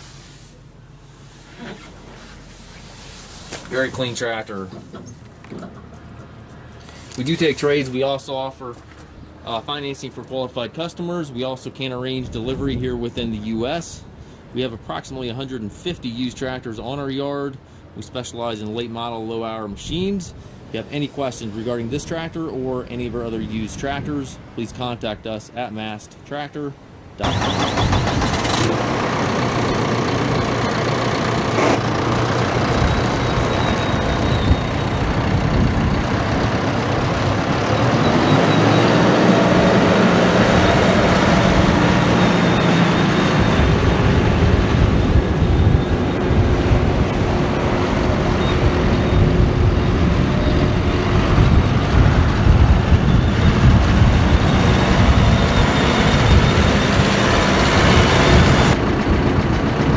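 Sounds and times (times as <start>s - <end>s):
tires on gravel: 0.0s - 13.8s, 27.2s - 59.9s
tractor diesel engine running: 27.2s - 59.9s.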